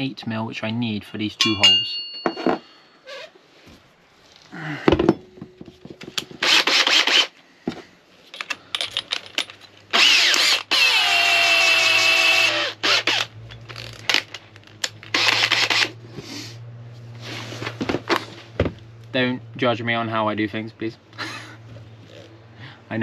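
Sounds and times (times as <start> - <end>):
cordless drill motor whine: 6.4 - 7.3, 9.9 - 13.3, 15.1 - 15.9
drill chuck ratcheting: 6.4 - 7.3, 8.4 - 15.9.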